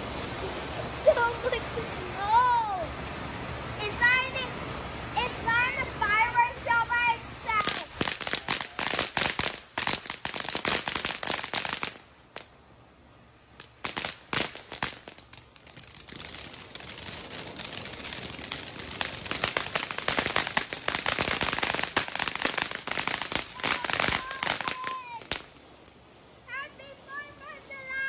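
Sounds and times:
fireworks popping and crackling: 7.4 - 12.6, 13.6 - 26.0.

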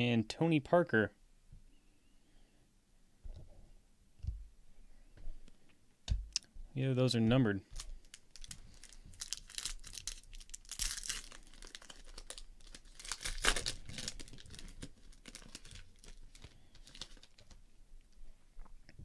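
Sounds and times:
foil pack tearing and crinkling: 7.8 - 17.6.

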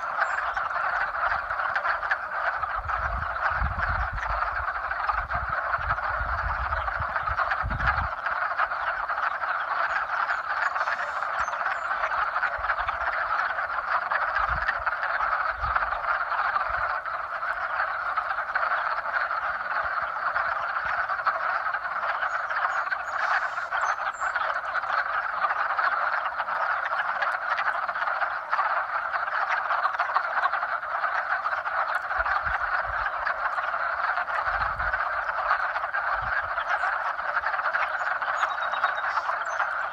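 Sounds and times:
frogs calling in chorus: 0.0 - 39.9.

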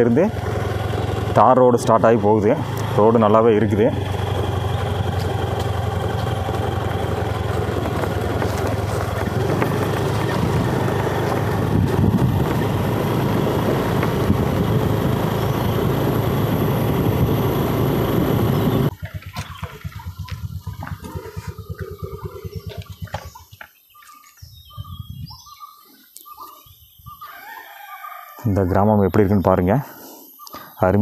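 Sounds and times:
motorcycle engine running: 0.0 - 23.7
wind rush: 8.2 - 18.9.

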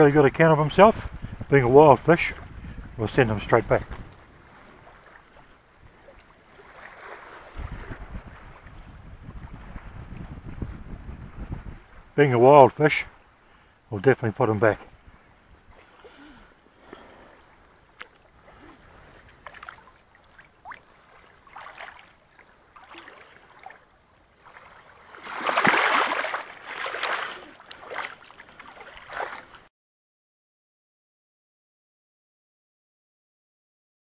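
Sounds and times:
lake water splashing: 1.6 - 10.4, 14.6 - 29.7.

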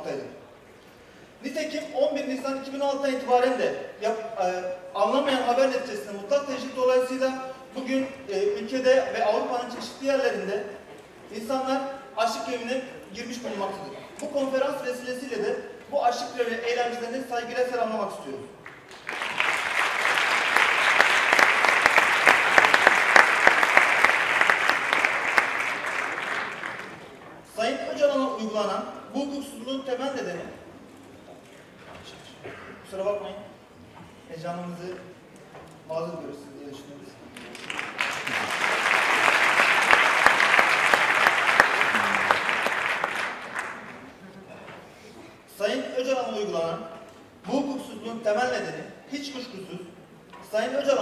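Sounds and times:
audience applauding: 18.6 - 27.1, 37.4 - 44.1.

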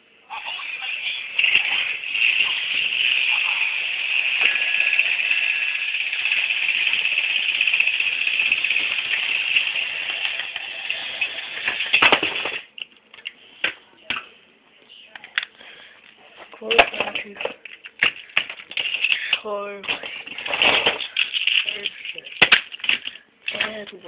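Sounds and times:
toy train whirring rattle: 0.4 - 12.6, 18.0 - 19.4, 20.0 - 23.2.

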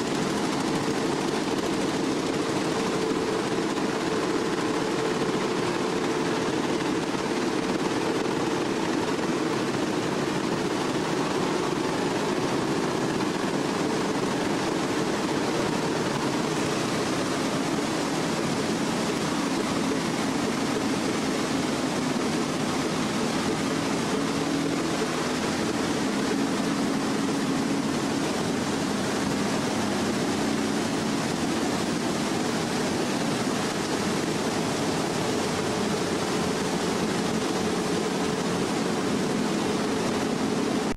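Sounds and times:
water pouring and splashing: 0.0 - 40.9.

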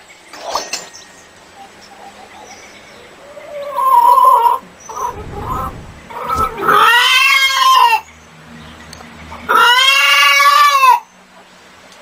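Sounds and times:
chicken calling: 3.2 - 8.0, 9.5 - 11.0.

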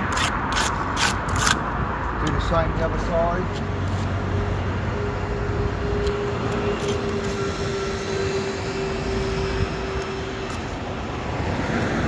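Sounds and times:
trowel scraping mortar: 0.0 - 1.6
steady engine drone: 0.0 - 12.0.

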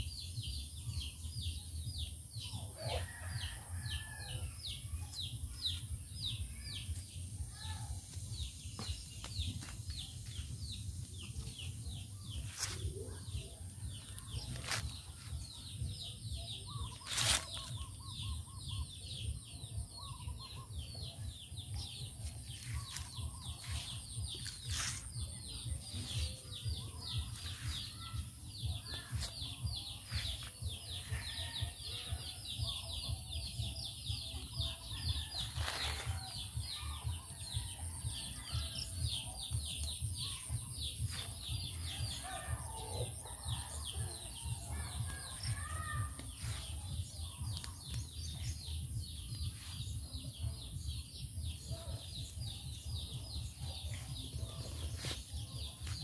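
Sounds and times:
birds chirping: 38.7 - 56.0.

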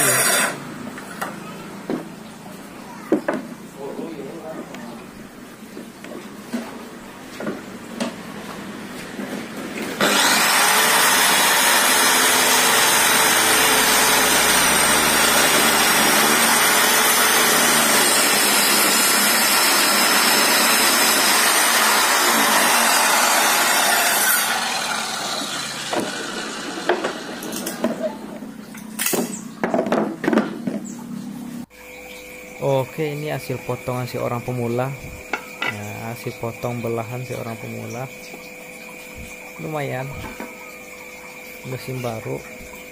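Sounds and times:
circular saw cutting wood: 0.0 - 0.8, 9.9 - 28.0.

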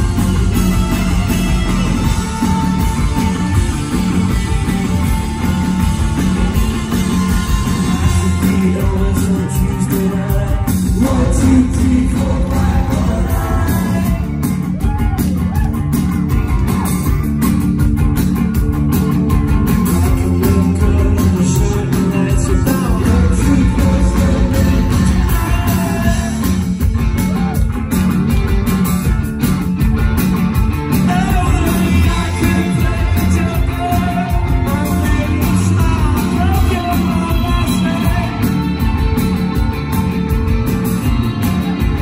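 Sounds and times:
bass guitar: 0.0 - 42.0
electric guitars: 0.0 - 42.0
person singing: 7.3 - 14.5, 20.1 - 26.7, 31.0 - 38.7.

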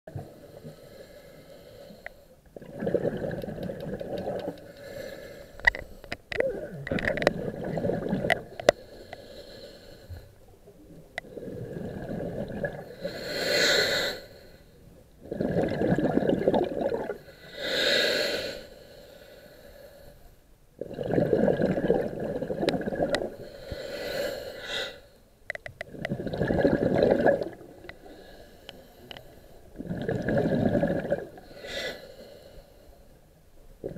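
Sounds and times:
bubbly underwater exhalations: 2.6 - 4.6, 6.4 - 8.5, 11.2 - 12.9, 15.2 - 17.2, 20.8 - 23.4, 25.9 - 27.8, 29.8 - 31.4.

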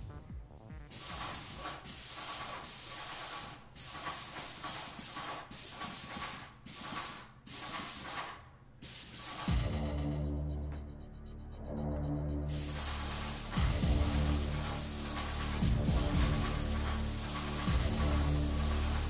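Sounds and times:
paint sprayer hissing: 0.9 - 9.6, 12.5 - 19.0.

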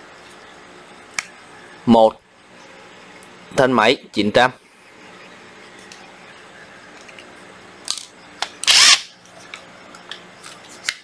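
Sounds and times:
faint steady hum: 0.0 - 11.0
power tool whirring burst: 8.6 - 9.1.

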